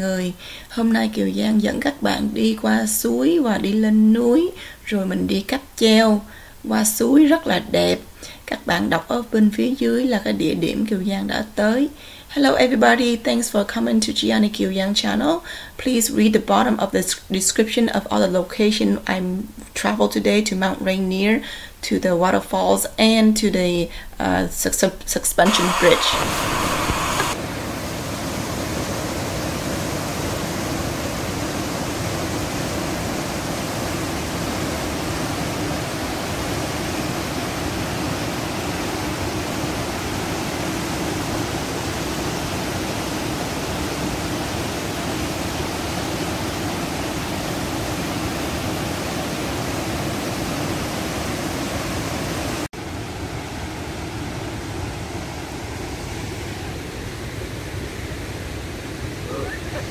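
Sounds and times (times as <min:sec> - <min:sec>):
waterfall roaring over rock: 0:25.5 - 0:52.7.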